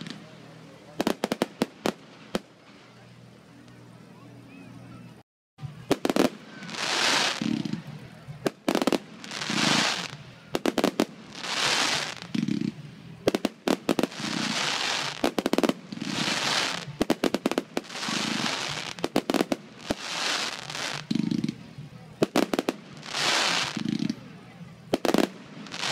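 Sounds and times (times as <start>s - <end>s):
firework crackling pops: 0.0s - 3.0s, 5.8s - 24.3s, 24.9s - 25.9s
firework hiss and boom: 5.8s - 25.9s.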